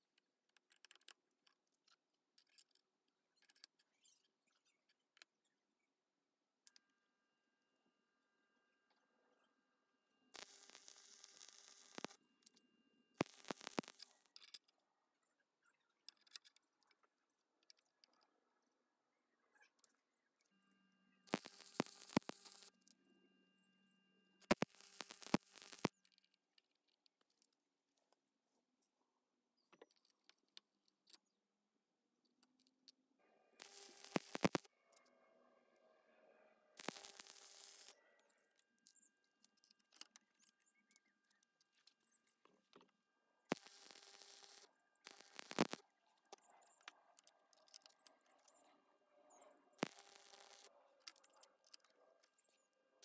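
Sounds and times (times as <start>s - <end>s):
welding arc hissing and crackling: 10.4s - 12.2s, 13.2s - 14.0s, 21.3s - 22.7s, 24.5s - 25.9s, 33.6s - 34.7s, 36.8s - 38.0s, 43.5s - 45.8s, 49.8s - 50.6s
faint hum: 17.0s - 25.9s
faint clicks: 43.5s - 48.7s.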